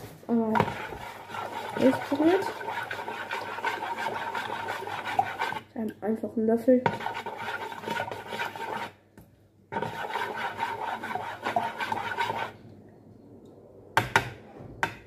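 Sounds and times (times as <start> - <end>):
spoon stirring in plastic jug: 0.3 - 6.0, 6.8 - 9.0, 9.7 - 12.8.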